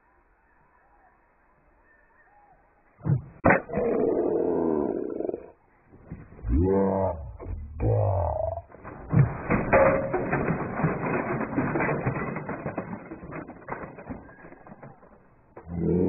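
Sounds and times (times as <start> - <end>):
crackles of falling debris: 7.8 - 16.0.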